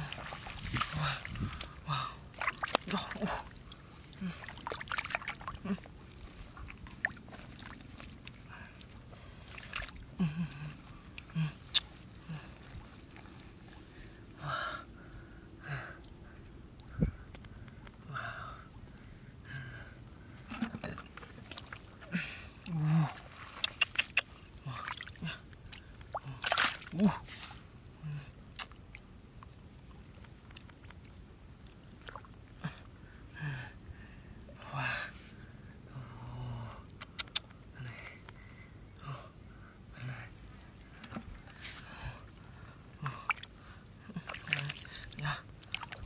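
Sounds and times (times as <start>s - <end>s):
hands splashing in muddy water: 0.0s - 3.5s, 4.1s - 5.8s, 25.7s - 27.0s
water splashes: 0.0s - 14.3s, 20.5s - 27.2s, 42.3s - 46.0s
human grunts: 10.2s - 11.6s
sharp wet clicks: 23.6s - 24.4s, 36.9s - 37.6s.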